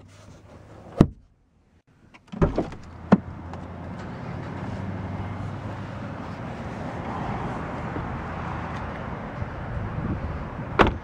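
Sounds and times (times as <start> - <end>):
car door thump: 2.3 - 3.2, 10.8 - 11.0
car door latch click: 10.8 - 11.0.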